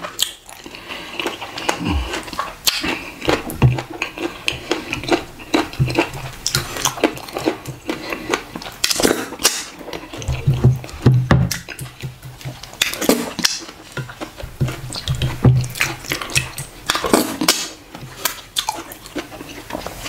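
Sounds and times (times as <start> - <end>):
wet lip smacks and chewing: 0.1 - 10.4.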